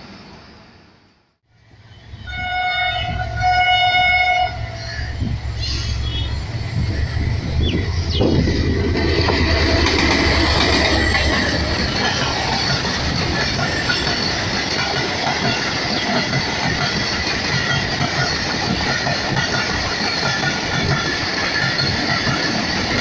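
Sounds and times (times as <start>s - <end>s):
locomotive low rumble: 1.5s - 14.3s
train wheels on rails rushing: 1.6s - 23.0s.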